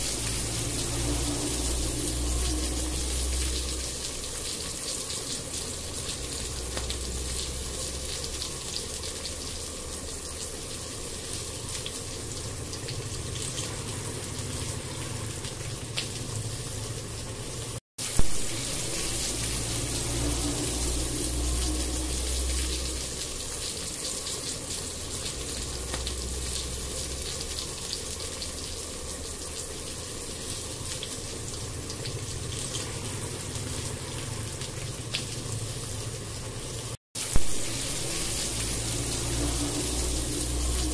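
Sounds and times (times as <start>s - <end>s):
low hum: 0.0s - 4.4s, 18.2s - 23.6s, 37.3s - 40.9s
food sizzling in a frying pan: 0.0s - 40.9s.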